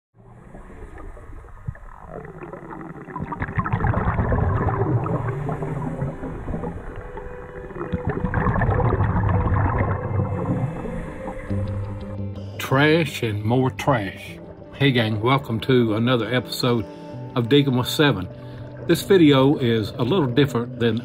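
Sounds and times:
underwater regulator bubbles: 0:00.2 - 0:12.2
low underwater rumble: 0:00.2 - 0:13.6.

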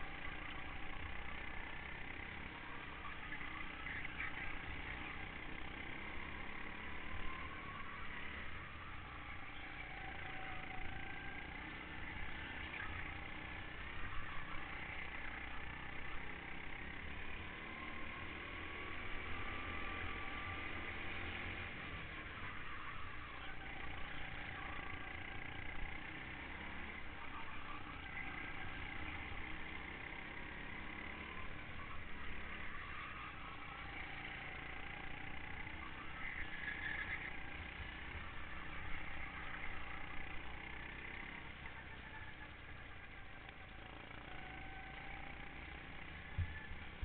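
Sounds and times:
go-kart engine running: 0:00.0 - 0:47.0.

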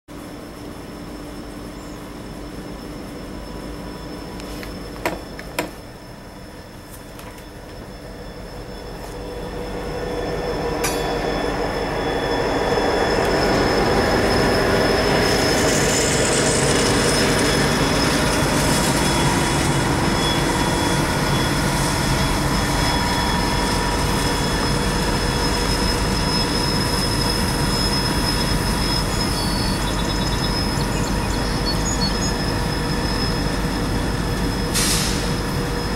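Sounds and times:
diesel locomotive pulling freight train: 0:00.1 - 0:35.9.

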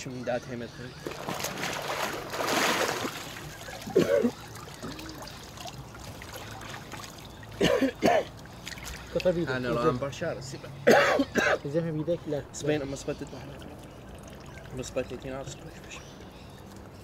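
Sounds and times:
river water splashing: 0:01.0 - 0:09.6.

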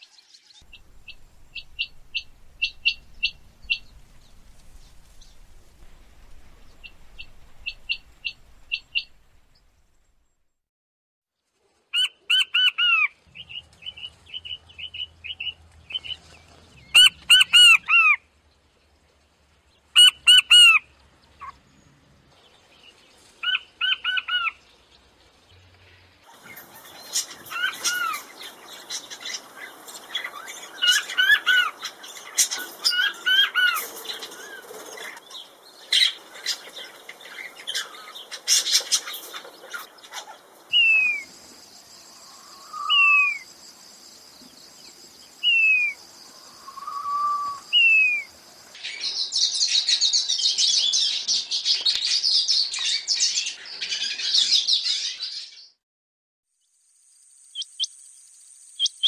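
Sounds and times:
crackling background noise: 0:00.6 - 0:10.4, 0:24.6 - 0:49.2
quail piping whistles: 0:40.7 - 0:41.3, 0:42.3 - 0:43.4, 0:45.4 - 0:46.0, 0:46.6 - 0:48.3.

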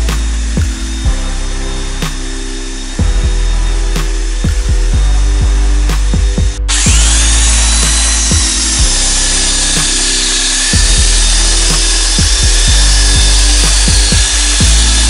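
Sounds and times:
background music with beat: 0:00.0 - 0:15.0
belt sander sanding wood: 0:06.7 - 0:15.0.

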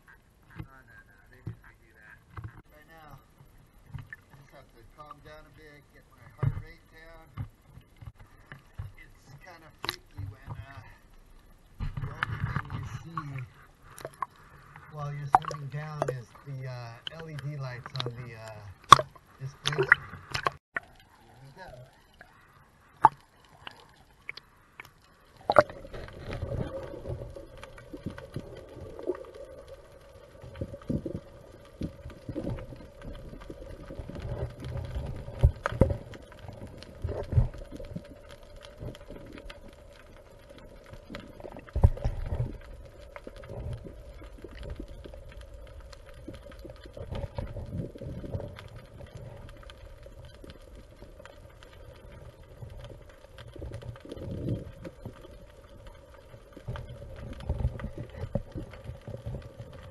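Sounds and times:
underwater hum: 0:00.0 - 0:59.9
low underwater rumble: 0:00.3 - 0:59.9
water splashing at surface: 0:15.0 - 0:21.0, 0:23.0 - 0:38.1.

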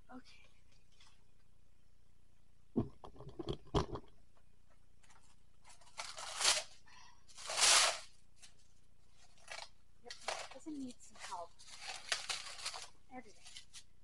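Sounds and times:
box knocks and rattles: 0:02.8 - 0:04.1
plastic wrap crackling: 0:05.0 - 0:08.6, 0:09.2 - 0:14.0.

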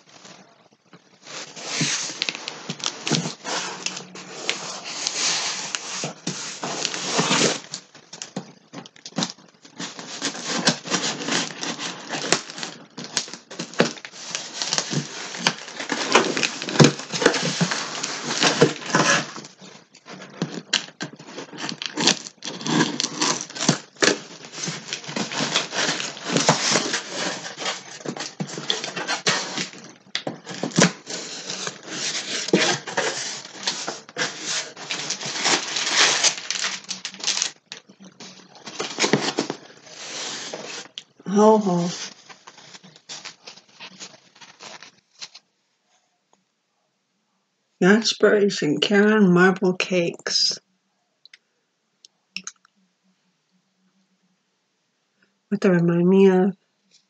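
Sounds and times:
cardboard box being unpacked: 0:01.2 - 0:08.5, 0:09.1 - 0:45.4.

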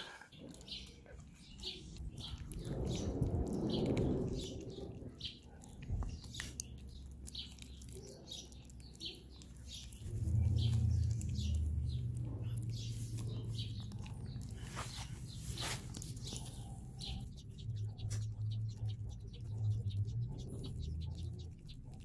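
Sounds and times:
bird chirping: 0:00.0 - 0:22.0
low steady hum: 0:00.4 - 0:22.0.

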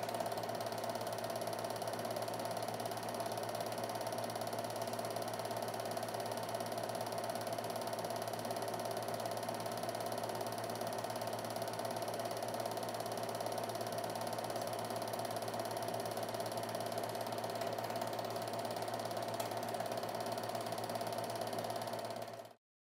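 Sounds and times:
film projector clatter: 0:00.0 - 0:22.6
projector hum: 0:14.5 - 0:21.6.

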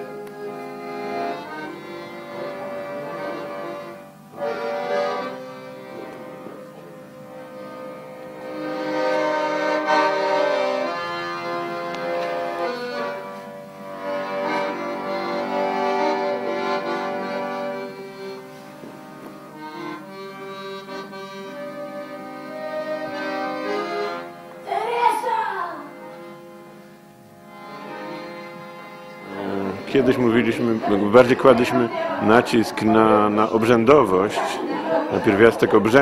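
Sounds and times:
instrumental music sustained chords: 0:00.0 - 0:36.0.

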